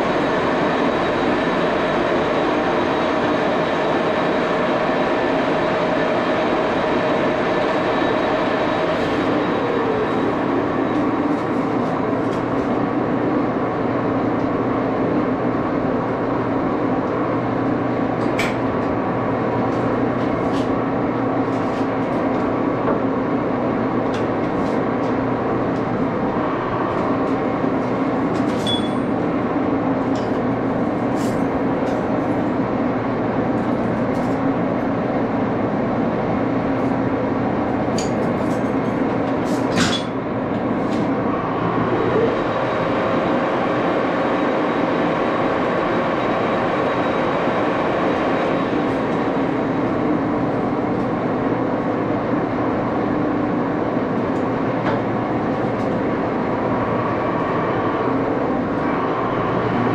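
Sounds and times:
lathe humming with faint whine: 40.2s - 59.9s.

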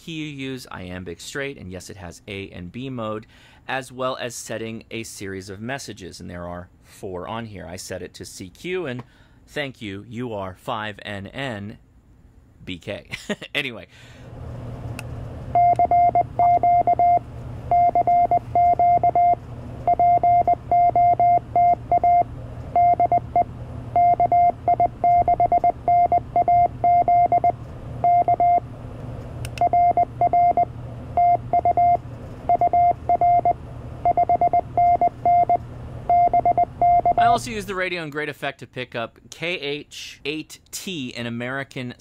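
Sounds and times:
steady low hum: 0.0s - 38.0s
morse code beeps: 15.6s - 28.6s, 29.6s - 37.4s.

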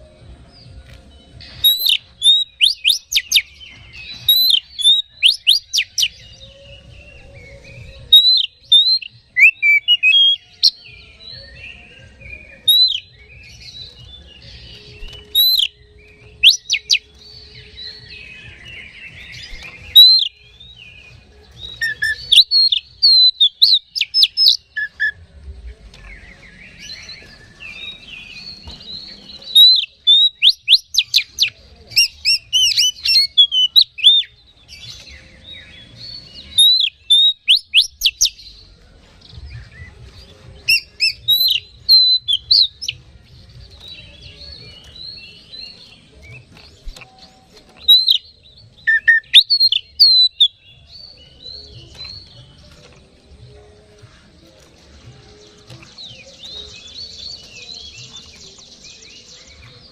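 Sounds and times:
songbird whistling and chirping: 0.0s - 59.9s
scratchy bird twittering: 1.5s - 6.2s, 17.9s - 20.5s, 21.7s - 25.2s.

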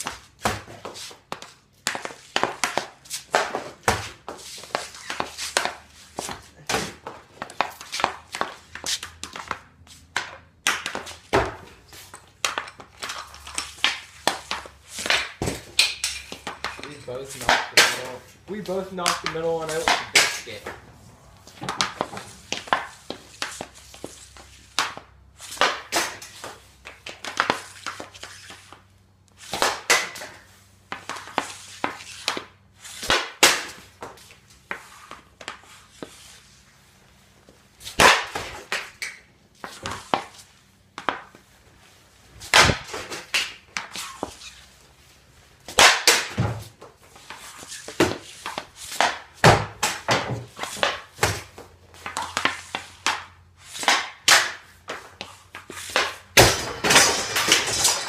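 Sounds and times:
hockey stick cracking against pucks: 0.0s - 20.8s, 21.5s - 36.4s, 37.8s - 41.4s, 42.4s - 44.6s, 45.7s - 58.0s
puck striking with ringing clatter: 19.0s - 20.6s, 45.8s - 46.5s, 55.9s - 58.0s.

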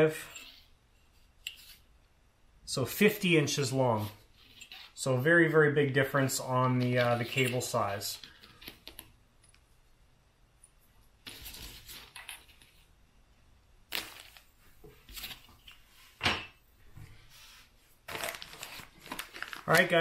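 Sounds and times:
cables rustling: 6.4s - 9.7s, 17.0s - 20.0s.

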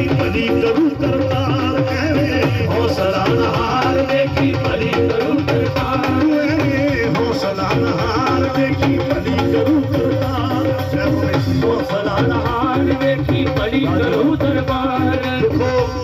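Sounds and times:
drums: 0.0s - 16.0s
keyboards: 0.0s - 16.0s
man singing through loudspeakers: 0.0s - 16.0s.

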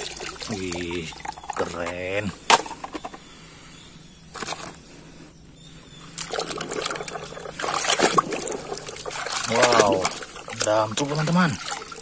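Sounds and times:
hand splashing in muddy water: 6.2s - 12.0s.

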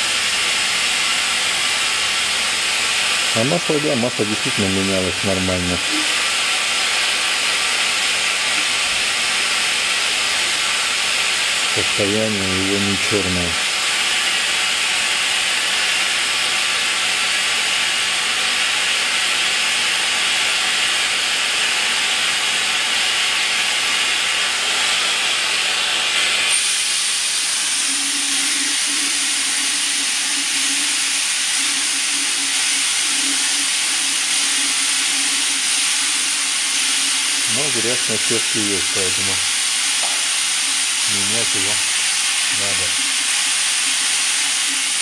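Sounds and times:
pump suction hiss: 0.0s - 45.0s.

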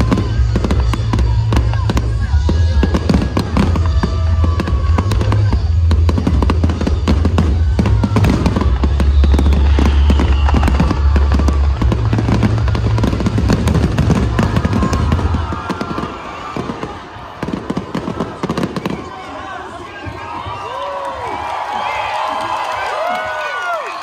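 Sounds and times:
fireworks bursting and crackling: 0.0s - 23.6s.

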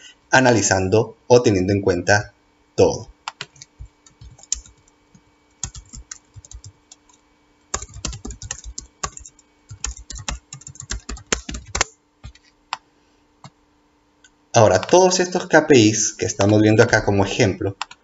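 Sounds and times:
typing on computer keyboard: 3.3s - 4.9s, 5.6s - 12.5s.

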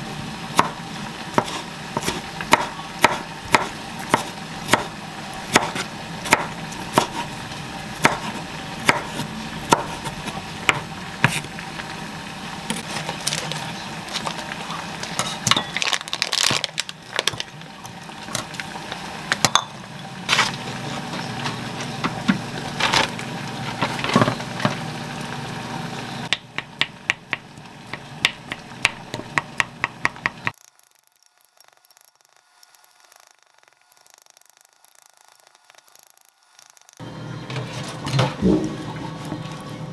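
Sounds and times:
knife chopping on wooden board: 0.6s - 4.9s, 5.5s - 7.3s, 8.0s - 11.5s
kitchen clatter: 19.3s - 24.8s.

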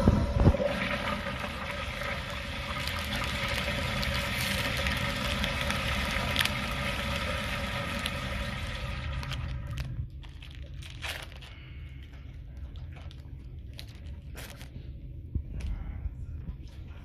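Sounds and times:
toilet refilling water: 0.0s - 9.9s
foil crinkling: 2.8s - 8.2s, 9.1s - 14.8s.

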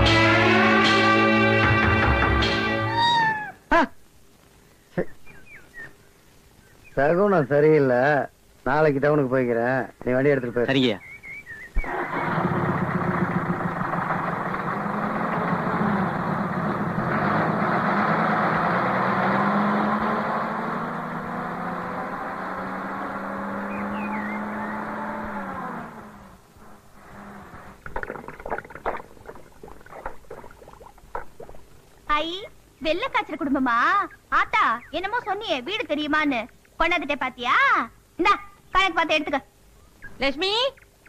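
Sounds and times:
bus engine running: 11.8s - 27.5s.

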